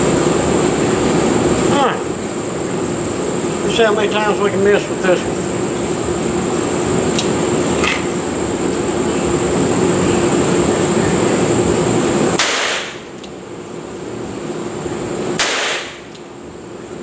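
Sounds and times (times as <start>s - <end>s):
machine hum with high whine: 0.0s - 17.0s
revolver gunshots: 12.4s - 13.0s, 15.4s - 16.1s.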